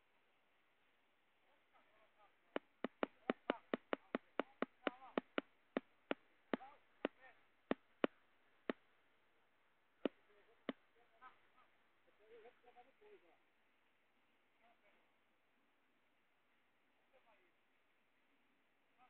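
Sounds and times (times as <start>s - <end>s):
sharp clicks: 2.6s - 8.8s.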